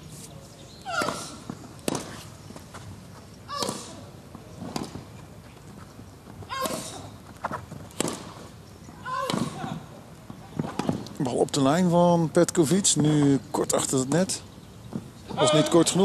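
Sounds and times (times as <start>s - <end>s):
racket striking tennis ball: 0.9s - 2.3s, 3.5s - 5.1s, 7.9s - 8.5s, 9.1s - 9.8s.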